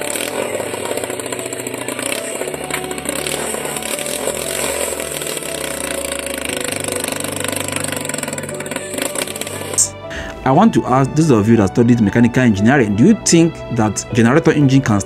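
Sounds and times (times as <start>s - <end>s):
small generator engine running: 0.0s - 10.3s.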